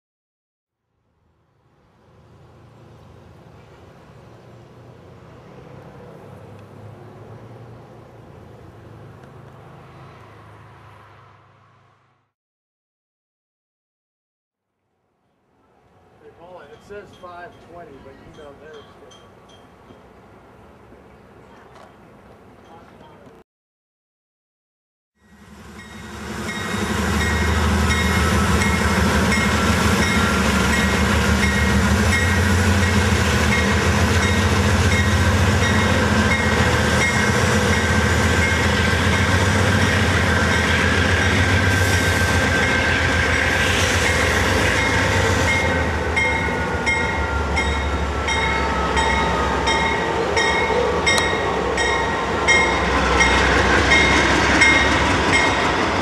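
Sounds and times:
diesel locomotive engine rumble: 25.2 - 56.0
train wheels rolling on rails: 25.4 - 56.0.

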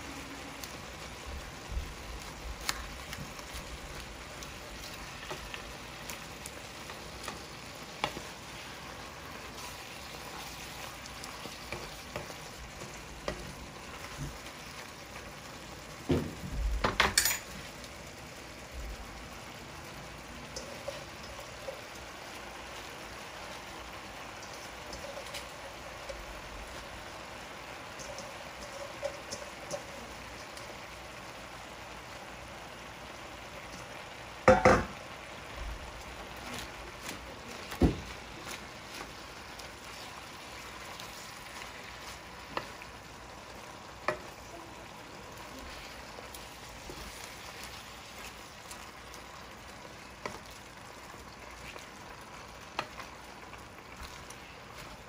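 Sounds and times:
vegetables sizzling in a frying pan: 0.0 - 55.0
wooden spatula knocking on pan: 34.5 - 35.0.

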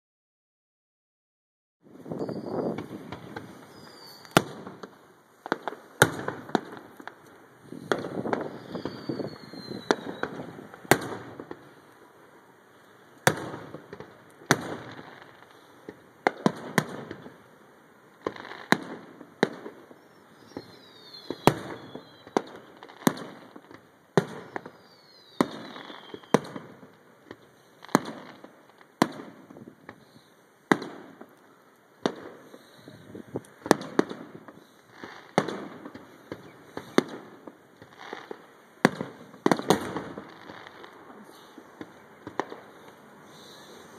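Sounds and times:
falling firework whistle: 1.9 - 4.9, 7.7 - 11.6, 18.3 - 28.5, 29.8 - 43.9
firework bangs with rumbling echo: 1.9 - 11.8, 13.2 - 17.4, 18.2 - 30.0, 30.7 - 31.3, 32.0 - 32.6, 33.3 - 34.6, 35.2 - 41.1.

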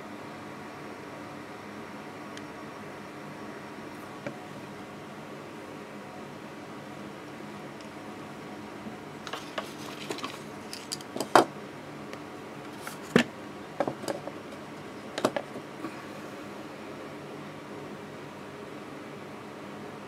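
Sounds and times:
board handling knocks and clicks: 13.1 - 14.4, 15.2 - 15.6.

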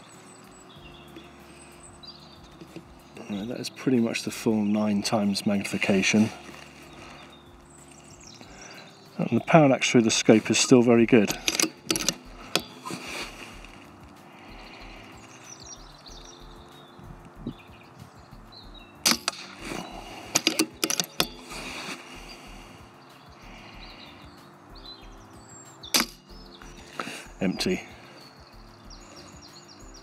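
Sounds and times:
low outdoor background: 0.0 - 30.0
air rifle cracks: 11.2 - 13.8, 19.0 - 22.2, 26.0 - 26.4.

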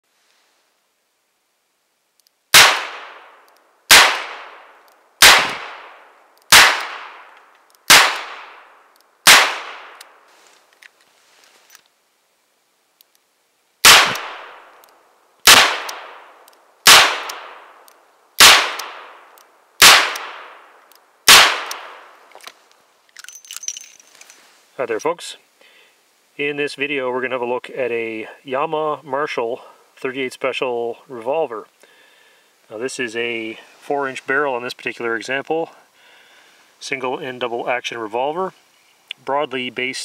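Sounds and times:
revolver gunshots with echo: 2.5 - 7.3, 7.9 - 10.0, 13.8 - 14.7, 15.4 - 17.8, 18.4 - 19.2, 19.8 - 20.7, 21.3 - 22.1.

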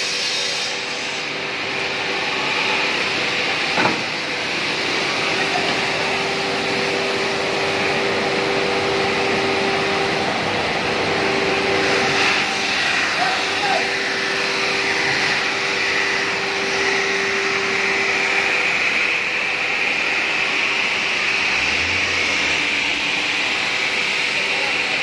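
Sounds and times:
brush sanding machine whirring: 0.0 - 25.0
mid-pitched hum: 17.6 - 25.0.

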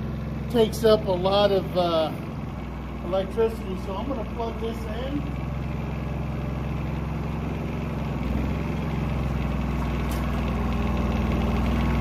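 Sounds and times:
generator engine running: 0.0 - 12.0.

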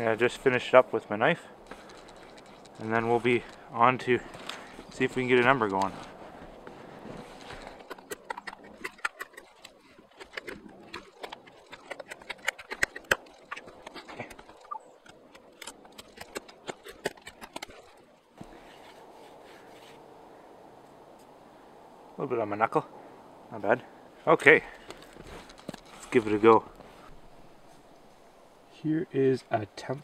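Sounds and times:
knife scraping a wooden stick: 7.2 - 18.0.

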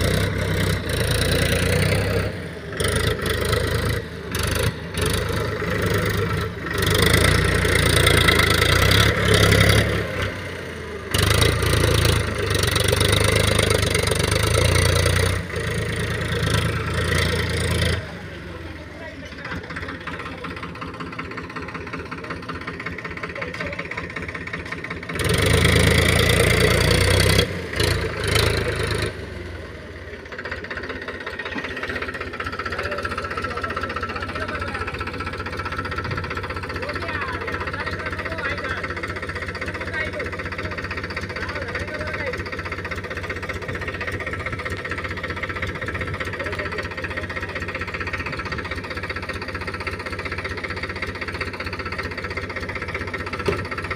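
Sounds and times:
tractor diesel engine running: 0.0 - 53.9.

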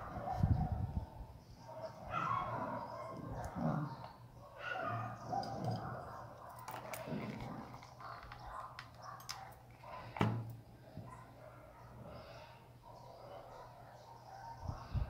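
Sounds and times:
small clicks and rustles: 5.4 - 9.8.

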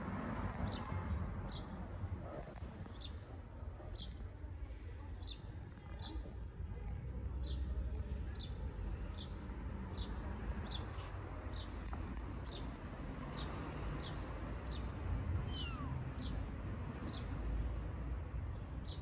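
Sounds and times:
kittens mewing: 15.3 - 16.5.

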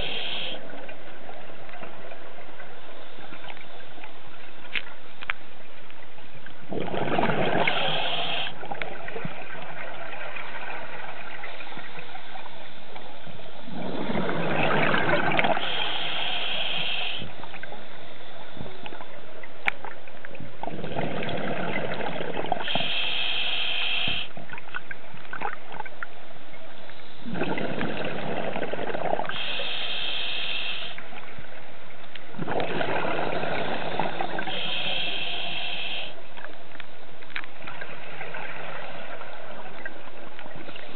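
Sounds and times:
exhaled bubbles rushing: 6.7 - 11.3, 13.7 - 15.7, 20.6 - 22.7, 27.2 - 29.3, 32.3 - 34.5
regulator hissing: 33.6 - 36.2.

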